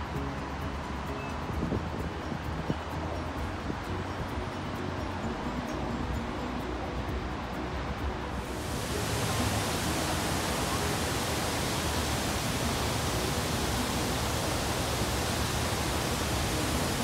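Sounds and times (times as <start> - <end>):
waterfall rushing: 8.4 - 17.0.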